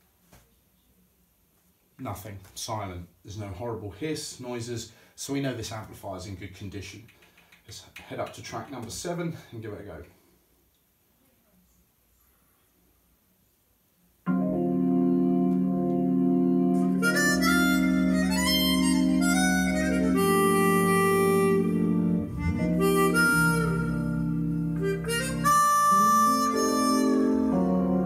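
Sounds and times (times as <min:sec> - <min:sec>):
music over loudspeakers: 0:14.4 - 0:25.6.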